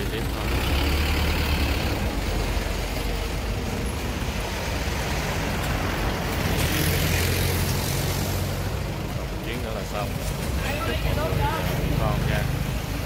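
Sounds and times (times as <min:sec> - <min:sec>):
truck engine idling: 0:00.0 - 0:06.7
rushing noise: 0:00.4 - 0:13.0.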